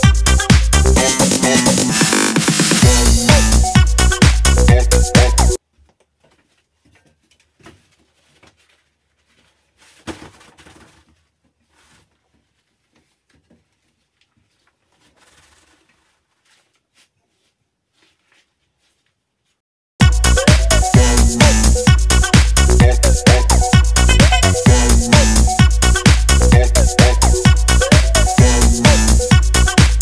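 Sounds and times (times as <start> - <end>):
wallpaper rustling and tapping: 5.8 - 19.6.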